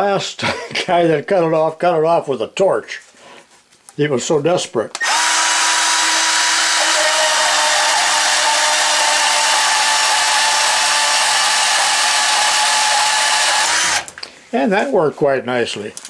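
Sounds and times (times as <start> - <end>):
band saw cutting metal rod: 5.0 - 14.1.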